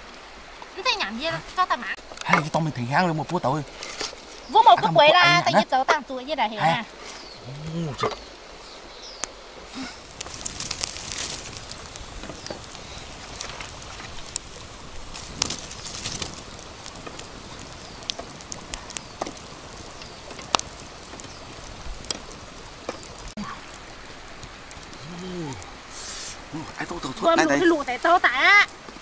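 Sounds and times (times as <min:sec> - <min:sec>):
wood fire crackling and popping: 0:00.1 - 0:08.6, 0:09.2 - 0:29.0
bamboo strips clacking: 0:10.0 - 0:23.3.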